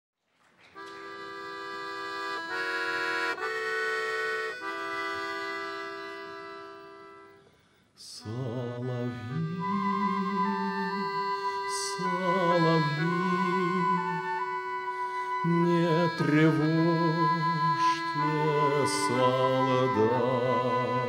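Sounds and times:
held chords: 8.2 - 21.0.

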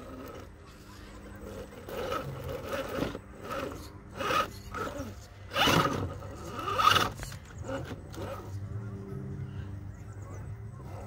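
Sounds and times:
rc car motor whirring: 0.0 - 8.7.

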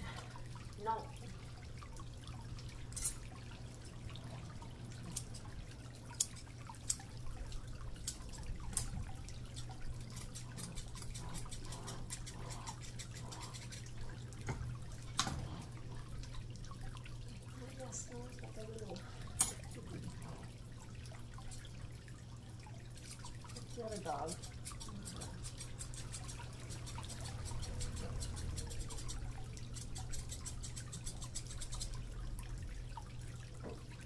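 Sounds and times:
scissors snipping fur: 9.5 - 13.9, 23.0 - 32.0.

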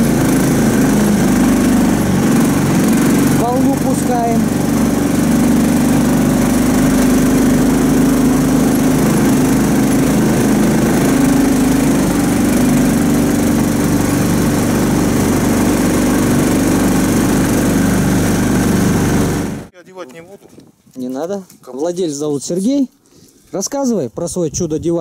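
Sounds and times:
small engine running: 0.0 - 19.7.

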